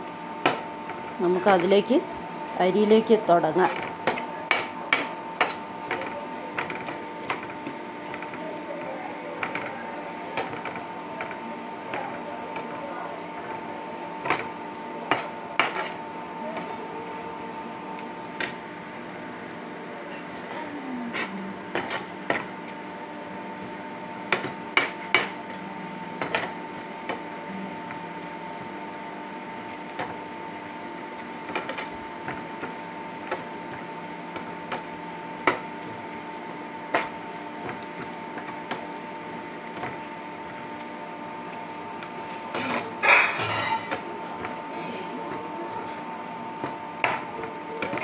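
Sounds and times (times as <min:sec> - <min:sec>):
steady background hum: 0:00.0 - 0:48.0
ladle clinking and scraping pan: 0:42.6 - 0:44.0.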